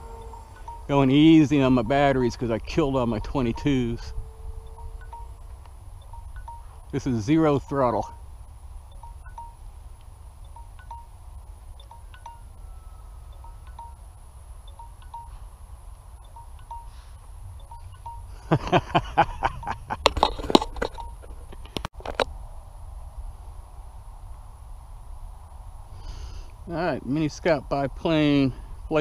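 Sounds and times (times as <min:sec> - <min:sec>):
faint high beeps: 0:00.0 - 0:09.8, 0:10.4 - 0:18.8.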